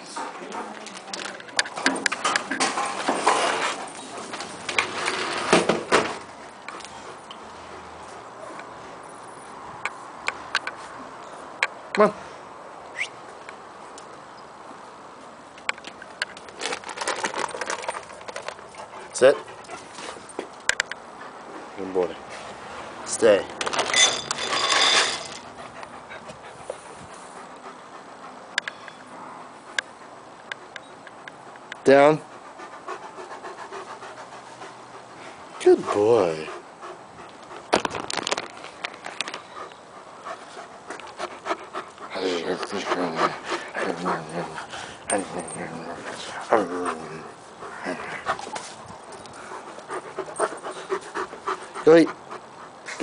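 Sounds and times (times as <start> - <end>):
sliding glass door rattling: 4.5 - 6.2
dry kibble rattling into a bowl: 16.4 - 18.7, 23.6 - 25.5, 37.7 - 39.4
dog panting: 16.9 - 20.5, 25.0 - 37.8, 39.0 - 53.0.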